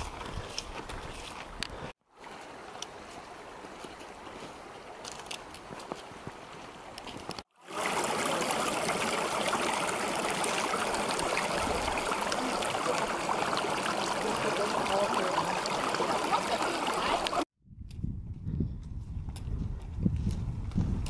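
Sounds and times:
stream babbling over rocks: 6.8s - 17.4s.

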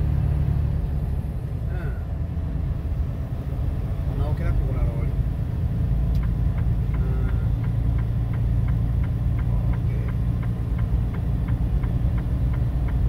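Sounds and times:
road rumble: 0.0s - 13.0s
truck diesel engine drone: 0.0s - 13.0s
light regular ticking: 6.1s - 13.0s.

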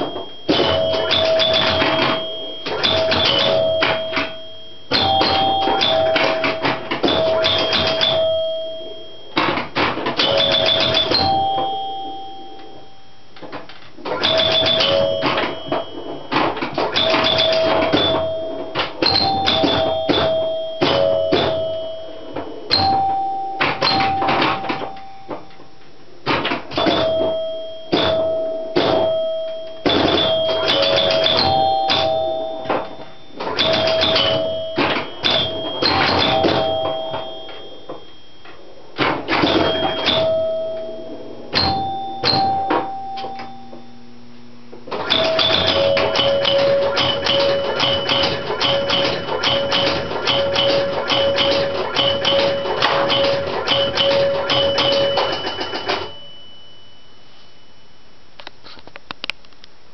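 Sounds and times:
chime bells ringing: 0.0s - 9.5s, 10.1s - 13.2s, 14.2s - 25.6s, 26.7s - 44.1s
pinball mechanical clicks and clacks: 0.0s - 43.8s, 44.7s - 56.4s.

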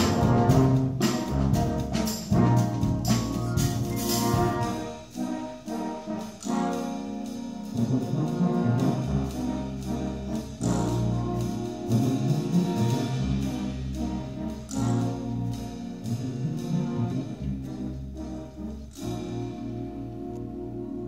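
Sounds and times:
low bass notes: 0.0s - 5.2s, 7.8s - 21.0s
percussion strokes: 0.0s - 18.2s
brass chords: 0.0s - 21.0s.

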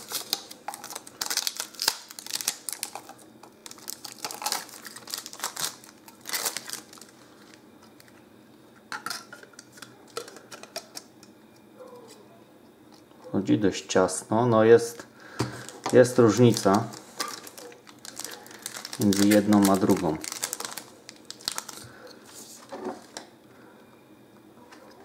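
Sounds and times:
plastic bag crackling: 0.0s - 7.6s, 15.6s - 22.0s.

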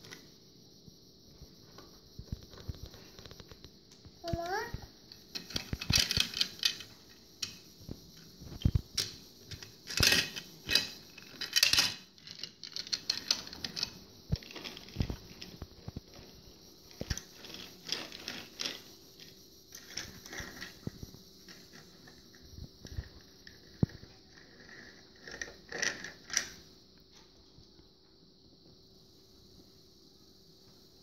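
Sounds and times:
plastic toys clicking on a tabletop: 4.2s - 16.3s, 16.9s - 20.9s, 22.8s - 26.6s.

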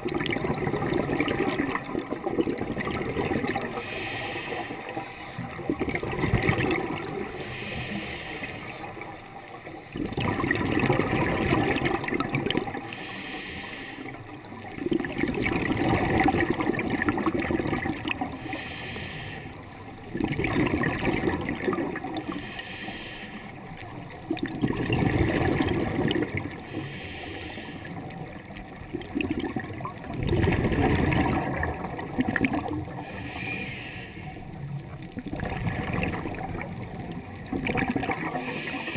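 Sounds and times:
underwater exhaled air bubbling: 0.0s - 38.9s.

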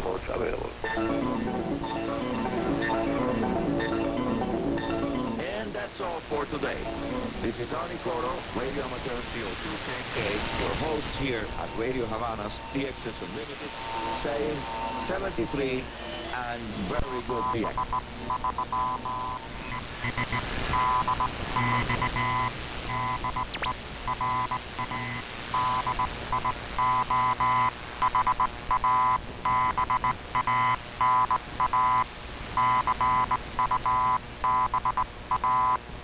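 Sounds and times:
faint background hiss: 0.0s - 36.0s
distorted shortwave broadcast: 4.8s - 36.0s
morse code buzzy tone: 17.0s - 35.8s.

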